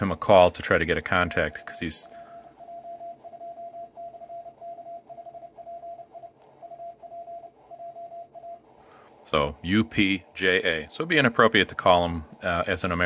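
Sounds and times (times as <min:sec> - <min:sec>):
faint radio hiss: 0:00.0 - 0:13.0
morse code tone: 0:00.0 - 0:13.0.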